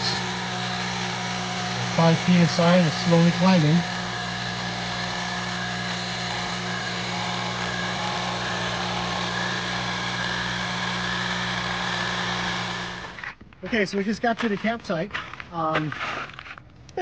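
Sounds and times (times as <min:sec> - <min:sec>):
tire inflator motor and pump hum: 0:00.0 - 0:13.4.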